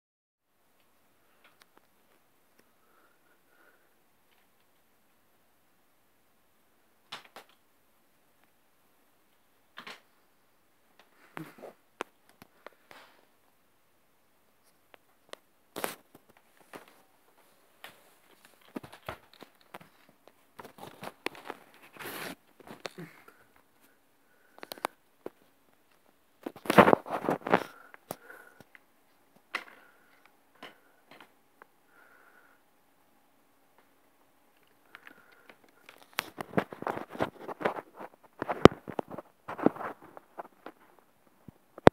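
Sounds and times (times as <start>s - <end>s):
handling rustles: 24.5s - 28.7s, 35.0s - 40.9s.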